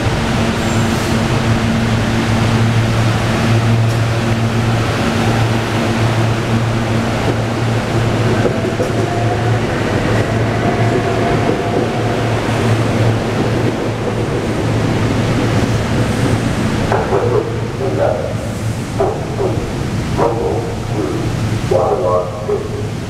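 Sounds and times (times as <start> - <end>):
train electric hum: 0.0 - 23.0
train wheels rumbling on rail: 0.0 - 23.0.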